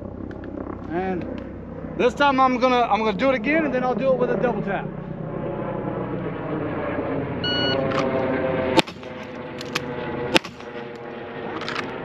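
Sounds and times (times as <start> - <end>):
shot timer beep: 7.4 - 7.8
pistol shots: 8.8 - 10.8
magazine reload clicks: 9.6 - 10.6.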